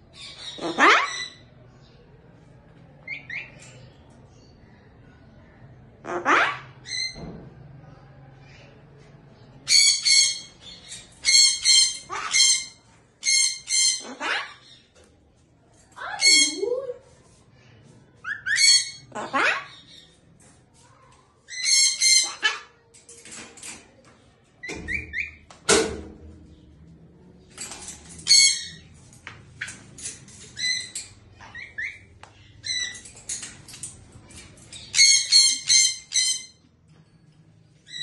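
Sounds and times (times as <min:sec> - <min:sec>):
knocks on cage: 0:24.7 - 0:26.3.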